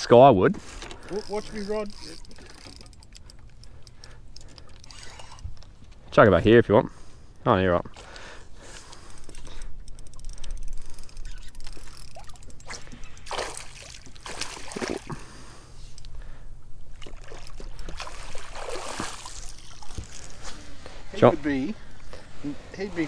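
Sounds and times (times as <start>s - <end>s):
water splashing against boat: 12.2s - 15.3s, 16.9s - 20.4s.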